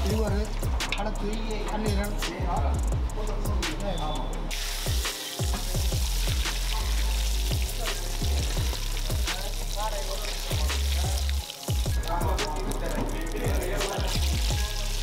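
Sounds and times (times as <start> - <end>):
background music with deep beat: 0.0 - 15.0
chicken deep-frying in oil: 4.5 - 15.0.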